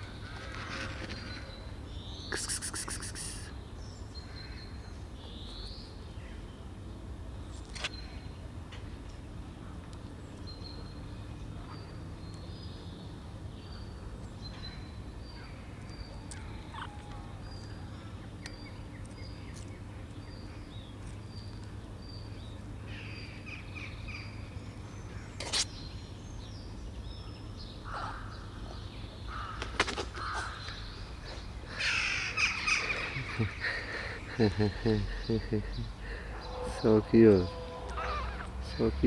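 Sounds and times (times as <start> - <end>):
outdoor background noise: 0.0 - 39.0
kittens mewing: 37.9 - 38.6.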